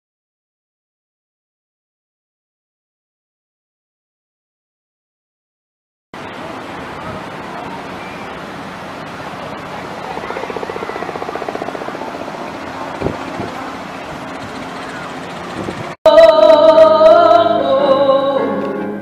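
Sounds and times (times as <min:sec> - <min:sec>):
rapid pulsing sound: 0:06.2 - 0:16.0
faint voices of beachgoers: 0:06.2 - 0:18.8
ocean surf: 0:06.2 - 0:18.8.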